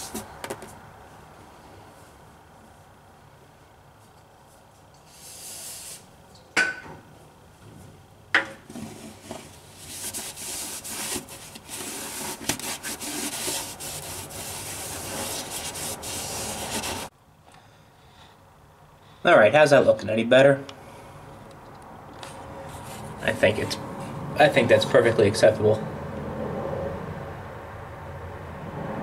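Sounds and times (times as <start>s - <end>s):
short hiss: 5.0s - 6.1s
cloth rag scrubbing metal: 8.8s - 17.1s.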